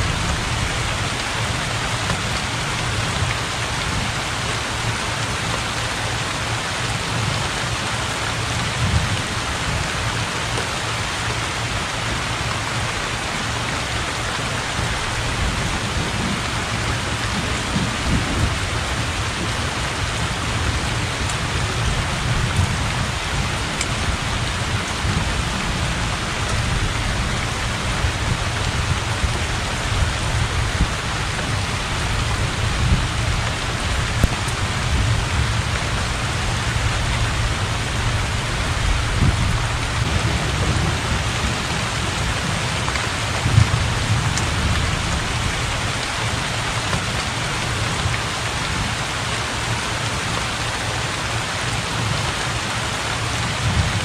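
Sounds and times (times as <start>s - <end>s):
heavy rain on water: 0.0s - 54.0s
thunder rumble: 14.7s - 46.3s.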